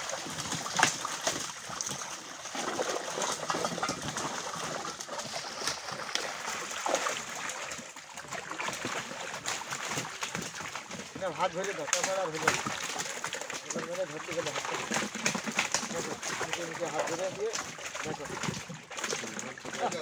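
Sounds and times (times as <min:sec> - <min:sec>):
water splashing from fish thrashing: 0:00.0 - 0:20.0.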